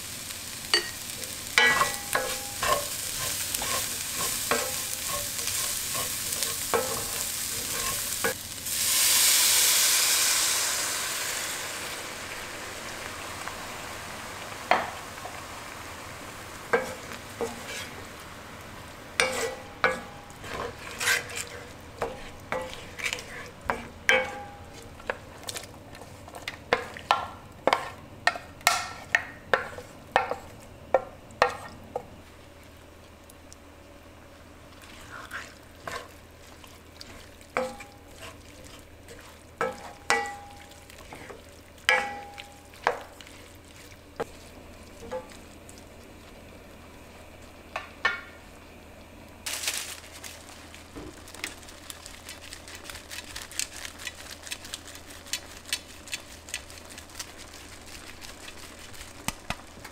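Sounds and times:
loud hissing sizzle: 0.0 - 30.1
wooden spoon scraping pan: 1.6 - 8.4, 16.8 - 18.0, 19.2 - 24.5, 34.8 - 40.3.

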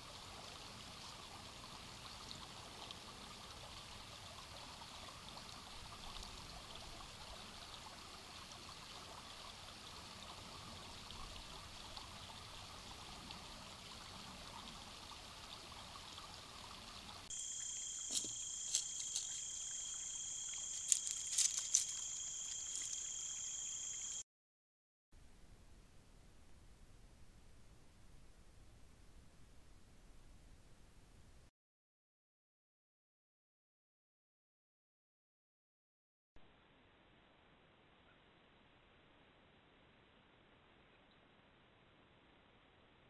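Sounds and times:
creek flowing over rocks: 0.0 - 24.2
high-pitched insect chorus: 17.3 - 24.2.

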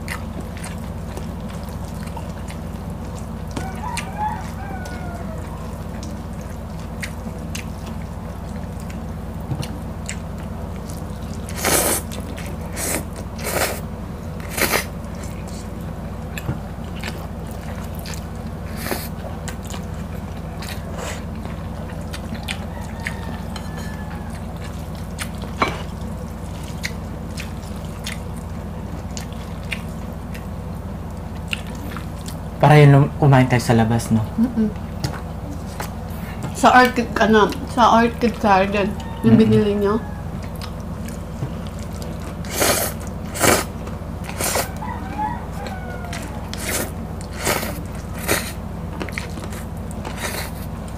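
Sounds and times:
steady low hum: 0.0 - 50.9
noodles slurped and chewed: 9.7 - 13.8, 14.4 - 15.7, 40.5 - 44.8, 46.2 - 50.9.

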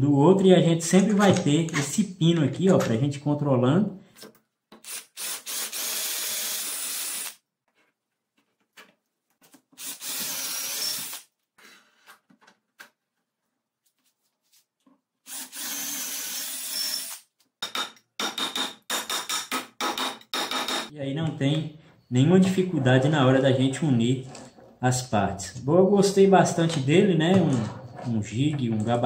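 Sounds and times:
cordless drill boring wood: 4.8 - 7.4, 9.8 - 11.2, 15.3 - 17.2.

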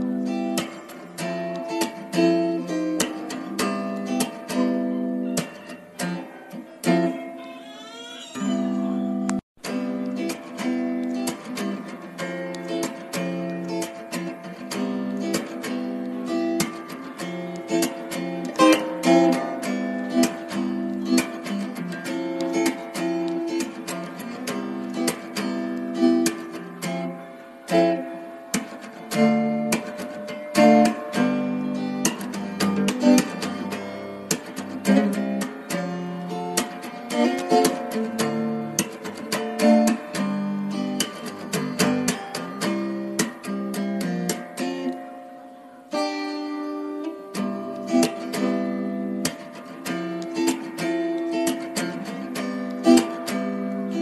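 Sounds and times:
acoustic guitar playing: 0.0 - 54.0.

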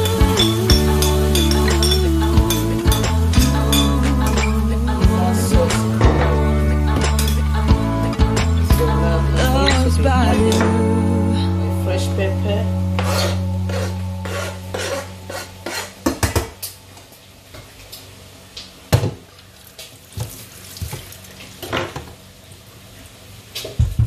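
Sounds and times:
background music: 0.0 - 16.0
utensil knocking on pots and pans: 16.0 - 16.6.

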